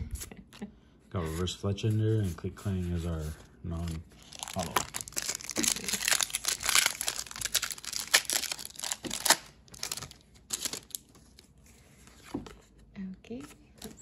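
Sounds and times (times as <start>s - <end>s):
foil wrapper crinkling and tearing: 3.8s - 11.4s.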